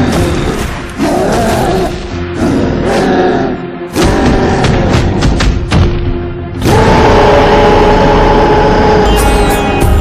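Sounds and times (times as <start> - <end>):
dramatic background music: 0.0 - 10.0
heavy accented music hits: 0.0 - 10.0.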